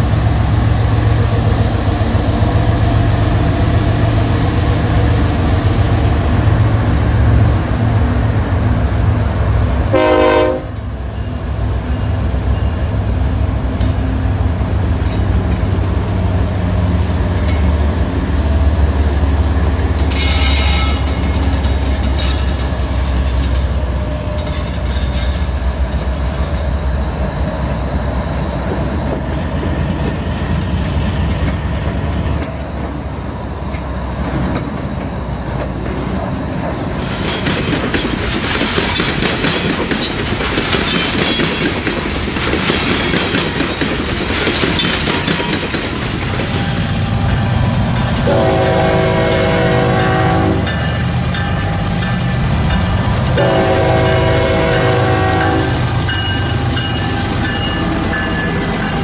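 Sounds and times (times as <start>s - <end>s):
model train wheels clattering on track: 37.1s - 46.8s.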